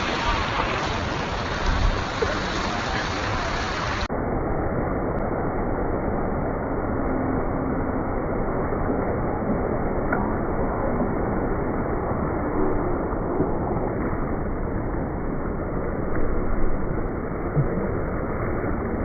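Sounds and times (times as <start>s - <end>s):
floodwater rushing and sloshing: 0.0s - 4.7s.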